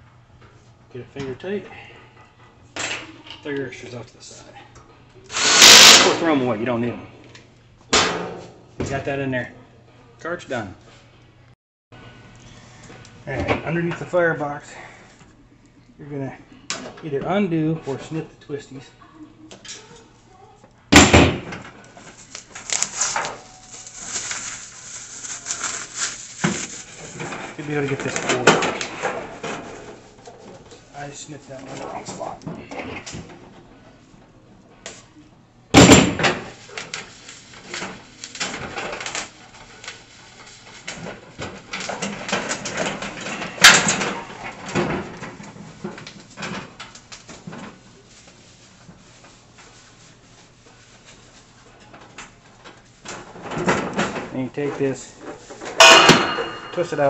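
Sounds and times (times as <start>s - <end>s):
grill parts rustling and clicking: 36.3s - 57.0s
loud metal rattle: 55.8s - 57.0s.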